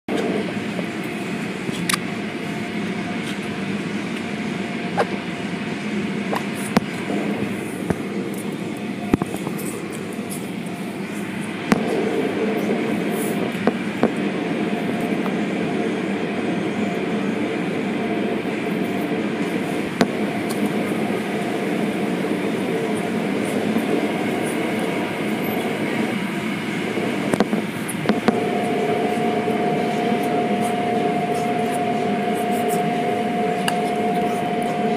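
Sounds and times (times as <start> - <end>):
car wash machinery rumble: 0.1 - 34.9
steady machine whine: 0.1 - 34.9.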